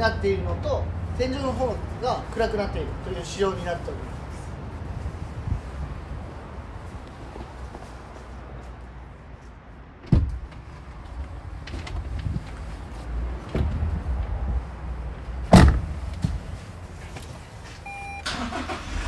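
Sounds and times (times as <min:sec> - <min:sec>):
low rumbling handling noise: 0:10.0 - 0:17.6
van doors thudding shut: 0:10.1 - 0:10.5, 0:15.5 - 0:16.4.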